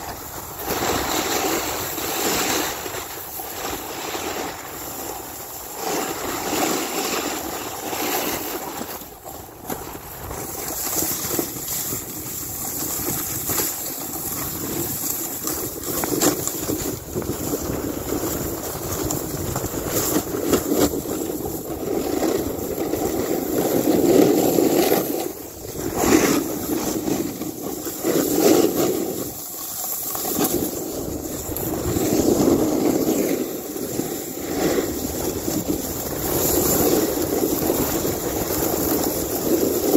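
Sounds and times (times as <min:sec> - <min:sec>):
snowboard sliding through snow: 0:00.0 - 0:39.9
wind buffeting microphone: 0:09.0 - 0:29.5, 0:30.3 - 0:39.9.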